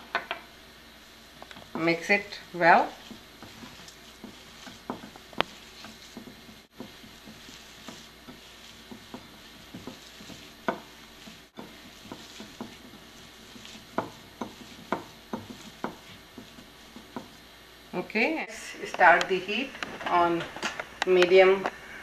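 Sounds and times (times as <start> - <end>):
dough squishing by hand: 1.4 - 17.6.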